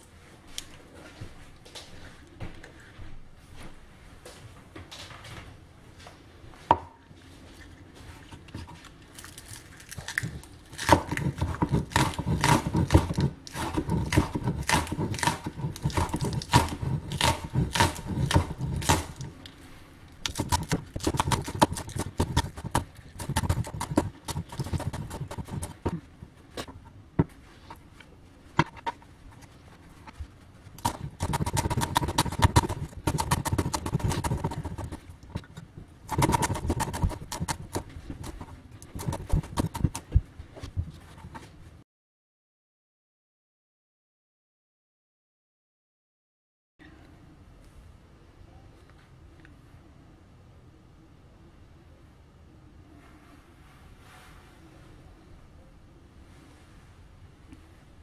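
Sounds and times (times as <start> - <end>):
cleaver chopping on wooden board: 10.8 - 19.2, 30.8 - 35.0.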